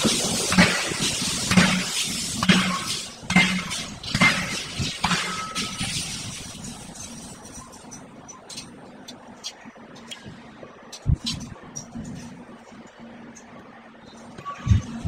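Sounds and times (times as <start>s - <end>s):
steel striking steel on anvil: 0.4s - 7.4s.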